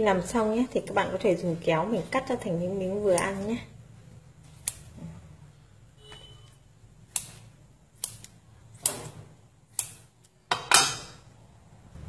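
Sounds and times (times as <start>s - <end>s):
scissors snipping: 3.0s - 3.5s, 4.4s - 5.0s, 7.0s - 9.1s, 9.7s - 10.4s.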